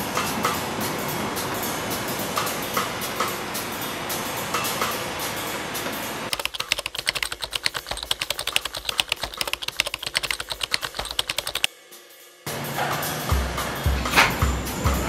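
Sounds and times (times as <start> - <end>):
rapid keystroke clicks: 6.3 - 11.7
street traffic noise: 12.5 - 15.0.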